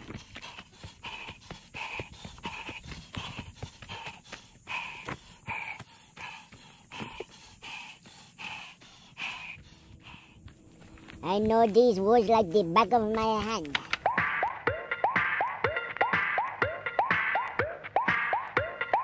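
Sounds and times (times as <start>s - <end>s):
man panting hard: 0.0s - 14.4s
footsteps crunching on dry leaves: 10.4s - 13.7s.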